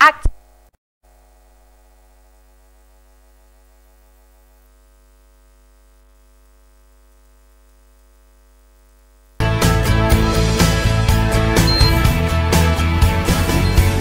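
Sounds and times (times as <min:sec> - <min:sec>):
electrical mains hum: 0:00.0 - 0:09.4.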